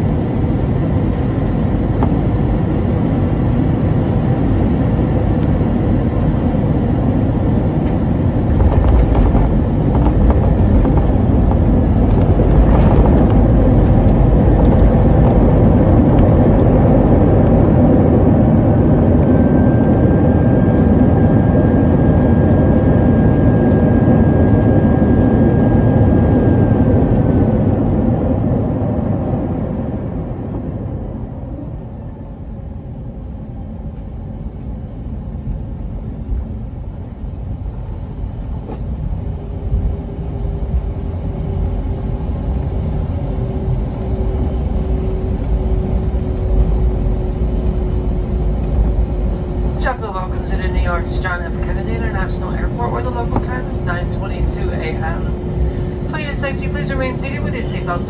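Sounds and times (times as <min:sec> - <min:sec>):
jet engine cabin rumble: 0:00.0 - 0:58.0
thin steady whine: 0:39.0 - 0:58.0.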